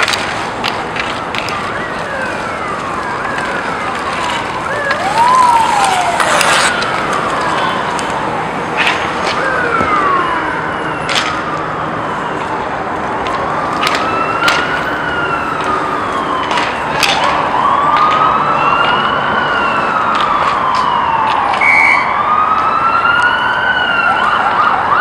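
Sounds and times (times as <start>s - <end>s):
hockey sticks and puck clacks: 0.0s - 8.2s, 8.8s - 10.0s, 11.0s - 11.6s, 13.2s - 14.9s, 16.4s - 19.0s, 20.1s - 21.7s
siren wailing: 0.0s - 25.0s.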